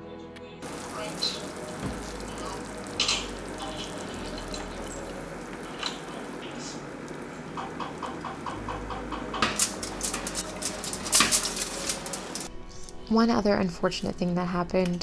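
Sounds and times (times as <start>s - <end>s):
pot of water boiling: 0.6s - 12.5s
food tapping on foil tray: 7.5s - 12.5s.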